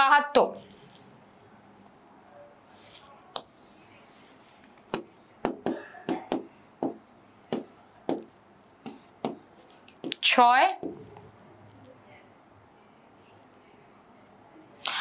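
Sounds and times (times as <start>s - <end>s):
chalk taps and scrapes: 2.8s - 11.2s
chalk scratching on board: 3.4s - 8.3s, 8.9s - 10.2s.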